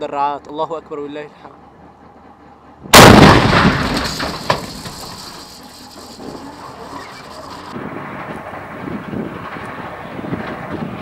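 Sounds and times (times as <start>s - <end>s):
low steady rumble: 0.0s - 11.0s
tank gun firing echo: 2.9s - 5.4s
sharp crack: 2.9s - 7.8s.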